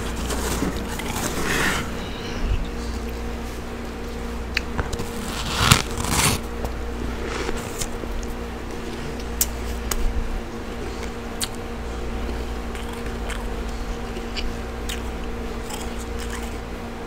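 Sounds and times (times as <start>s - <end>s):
steady low hum: 0.0s - 17.0s
frost being bitten and chewed: 12.3s - 16.6s.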